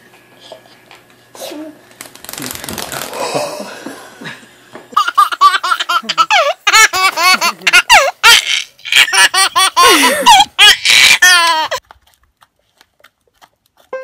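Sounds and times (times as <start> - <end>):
baby laughing: 4.9 - 11.8.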